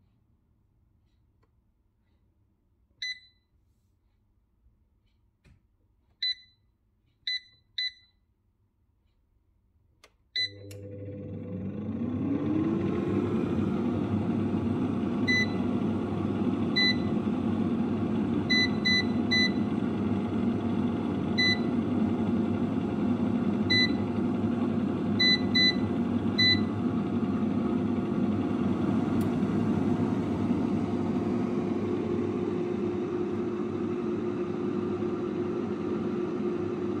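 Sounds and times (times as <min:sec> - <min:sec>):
air fryer fan whirring: 0:10.4 - 0:37.0.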